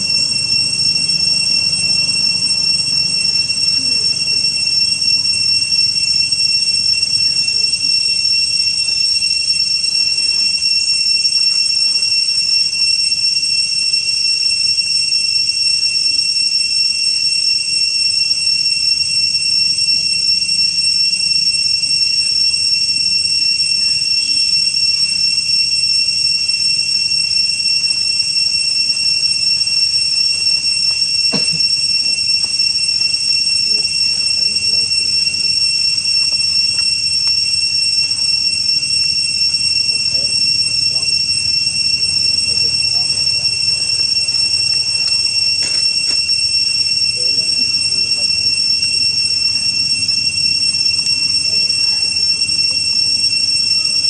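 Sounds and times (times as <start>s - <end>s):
cicadas droning: 0.0s - 54.0s.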